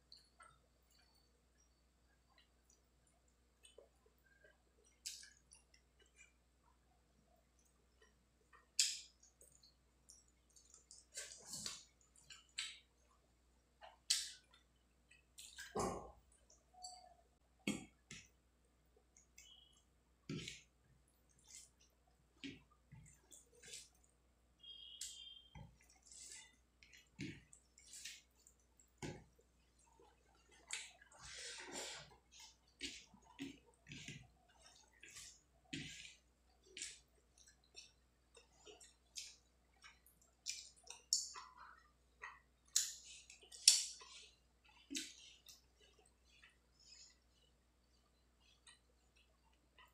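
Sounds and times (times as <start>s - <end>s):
person eating by hand: 7.4s - 49.9s
wet chewing and lip-smacking: 7.6s - 13.0s
fingers mixing rice and curry: 19.0s - 49.9s.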